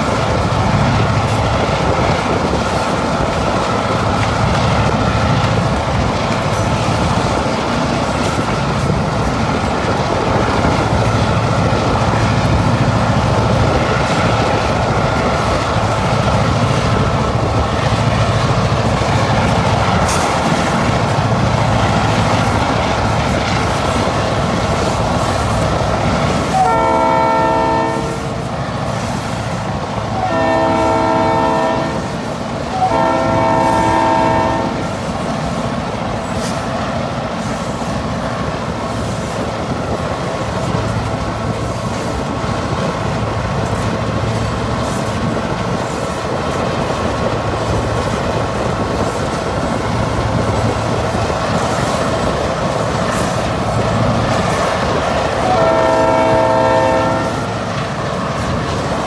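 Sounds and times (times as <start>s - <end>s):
freight train rumbling: 0.0s - 59.0s
locomotive horn blasts: 26.5s - 28.4s, 30.1s - 34.9s, 55.4s - 57.6s.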